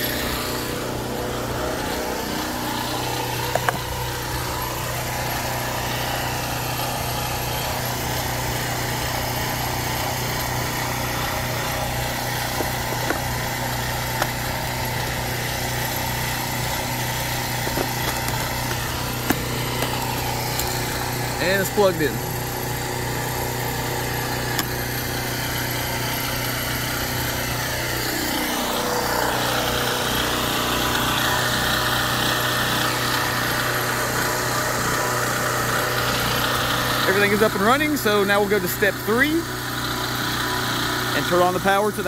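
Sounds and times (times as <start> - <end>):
generator engine running: 0.0 - 42.0.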